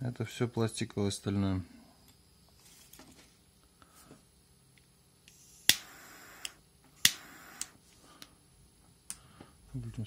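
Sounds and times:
torch jet hissing: 5.3s - 7.8s
piezo igniter snapping: 5.6s - 8.3s.

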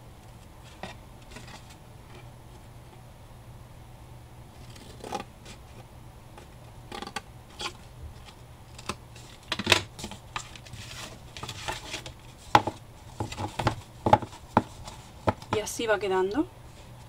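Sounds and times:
cardboard rustling: 0.6s - 2.3s, 6.4s - 15.7s
scissors cutting cardboard: 4.6s - 5.6s.

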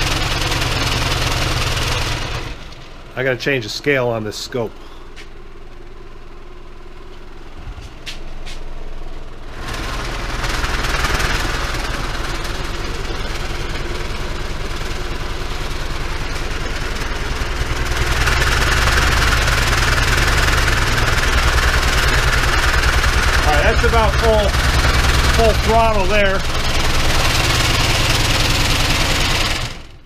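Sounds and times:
subwoofer pulsing rumble: 7.3s - 8.4s.

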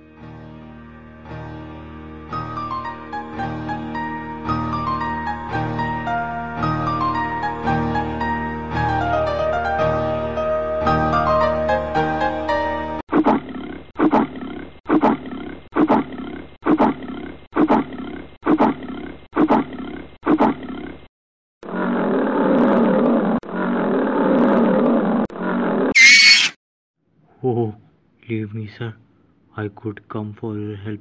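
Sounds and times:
piano music: 0.0s - 13.0s
cartoon lion snoring: 13.2s - 25.9s
lion roar: 21.6s - 25.9s.

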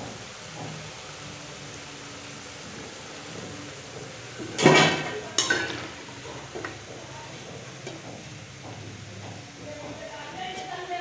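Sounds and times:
food sizzling in oil: 0.0s - 11.0s
metal skimmer knocking on pan: 4.4s - 9.5s.

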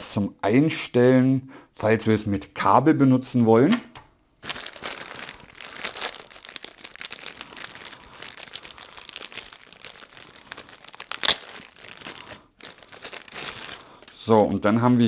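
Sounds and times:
plastic bag crinkling: 4.4s - 14.6s.

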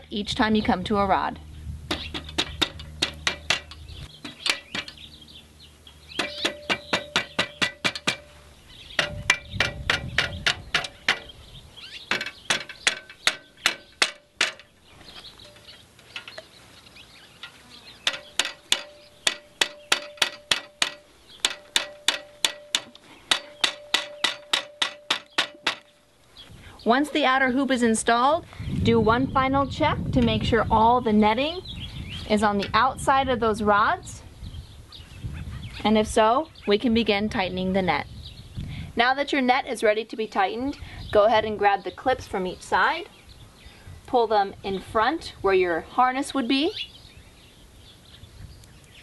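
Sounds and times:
rubber mallet tapping metal rods: 1.9s - 5.0s, 6.2s - 8.4s, 9.0s - 11.3s, 12.1s - 14.7s, 17.4s - 25.9s
metal frame ringing: 6.1s - 8.4s, 9.0s - 11.3s, 17.4s - 25.9s.

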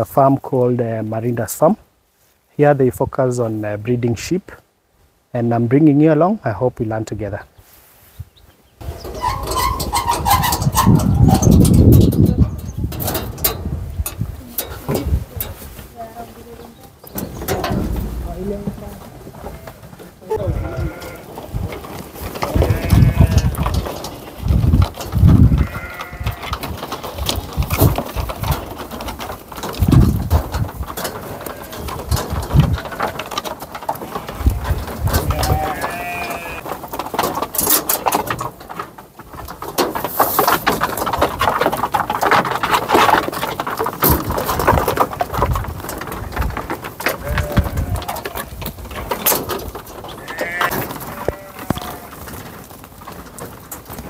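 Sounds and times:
heavy thuds of hooves: 8.2s - 54.0s
hooves on wooden platform: 8.2s - 54.0s
sheep bleating: 19.4s - 21.3s, 22.5s - 23.5s, 35.3s - 36.6s, 50.2s - 52.2s.

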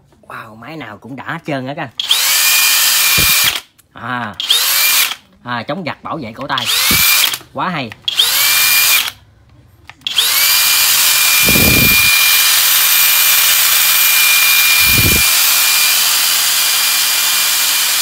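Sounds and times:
drill whining: 2.0s - 3.7s, 4.4s - 5.2s, 6.6s - 7.4s, 8.1s - 9.2s, 10.0s - 18.0s.

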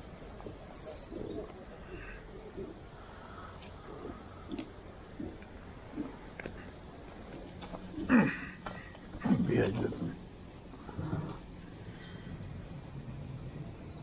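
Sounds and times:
small birds chirping: 0.0s - 4.6s, 11.2s - 14.0s.

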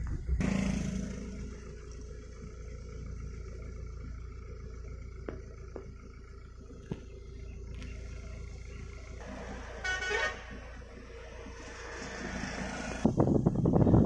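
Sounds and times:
road and wind noise from car: 0.0s - 14.0s
road traffic: 0.0s - 14.0s
vehicle horn toot: 9.3s - 10.9s.

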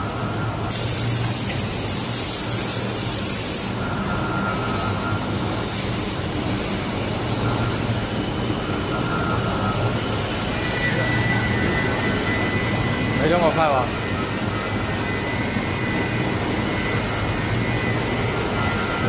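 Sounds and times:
loud hiss: 0.7s - 3.8s.

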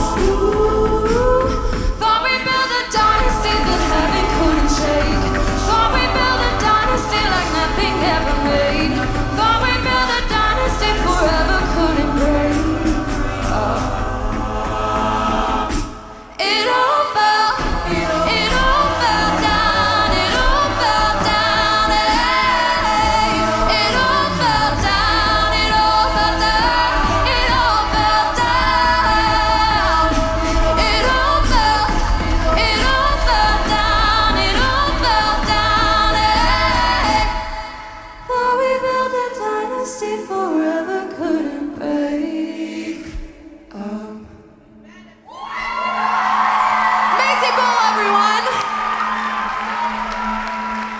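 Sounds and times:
female lead voice singing: 0.0s - 14.2s, 15.5s - 45.2s
beatboxed drums: 0.0s - 39.4s
backing vocal harmonies: 0.0s - 50.9s
sung bass line: 17.6s - 37.3s.

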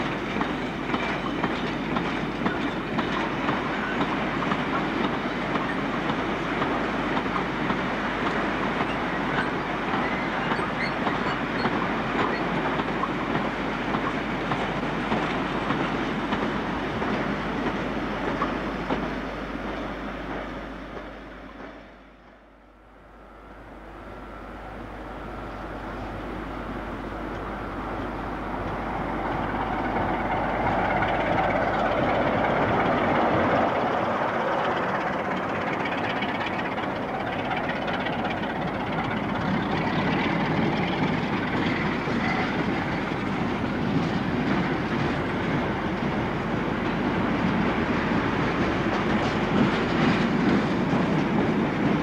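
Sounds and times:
train wheels clattering on rails: 0.0s - 22.0s, 27.3s - 52.0s
diesel locomotive engine: 0.0s - 52.0s.

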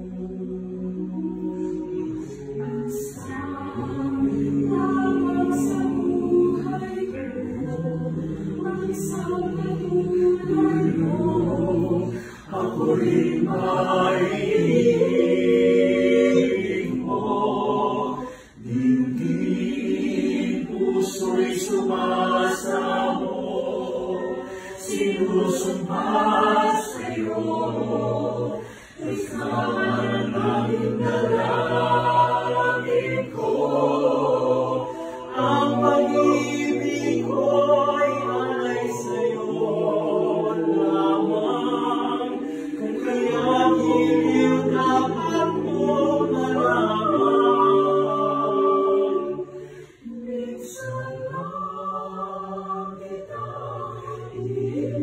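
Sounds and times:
choir singing a cappella: 0.0s - 55.0s
singers breathing: 12.1s - 12.5s, 18.2s - 18.7s, 24.4s - 24.8s, 28.6s - 29.1s, 34.8s - 35.3s, 42.4s - 42.8s, 49.4s - 50.2s.

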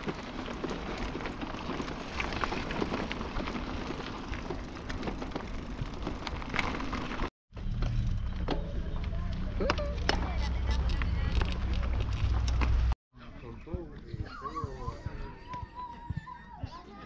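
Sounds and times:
bicycle tyres crunching on gravel: 0.0s - 13.0s
low rumble: 7.5s - 13.0s.

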